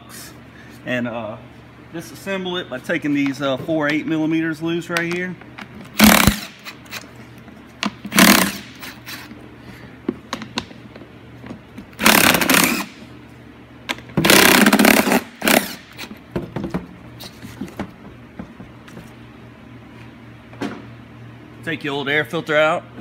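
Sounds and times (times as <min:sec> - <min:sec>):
cordless screwdriver whirring: 0:06.0 - 0:07.1, 0:08.1 - 0:09.3, 0:12.0 - 0:12.9, 0:14.3 - 0:16.1.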